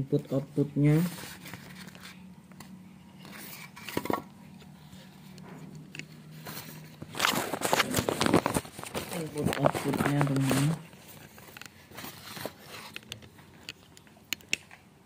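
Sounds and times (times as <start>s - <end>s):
faint steady hum: 0.0s - 15.0s
plastic and foam wrapping crackling: 6.3s - 14.0s.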